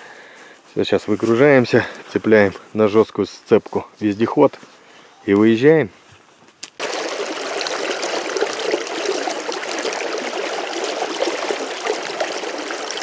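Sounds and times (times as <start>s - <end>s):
stream flowing: 6.8s - 13.0s.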